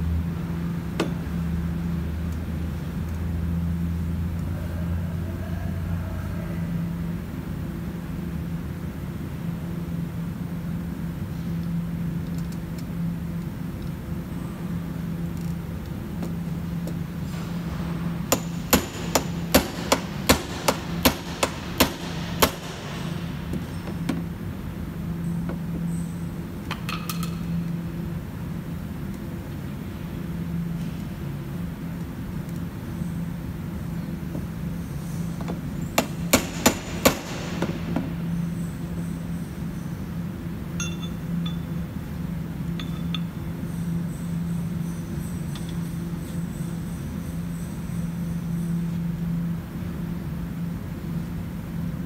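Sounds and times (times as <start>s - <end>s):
low machine hum: 0.0s - 52.0s
hammer tapping metal: 18.3s - 22.9s, 40.8s - 41.6s, 42.8s - 43.3s.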